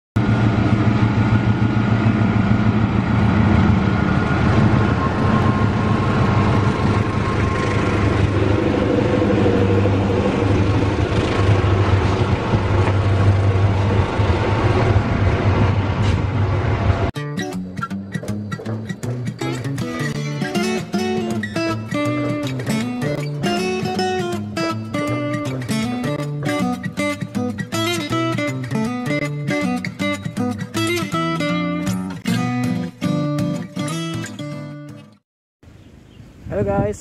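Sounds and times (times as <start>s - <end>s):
diesel locomotive passing: 0.2s - 17.1s
train coaches rolling on rails: 0.3s - 17.1s.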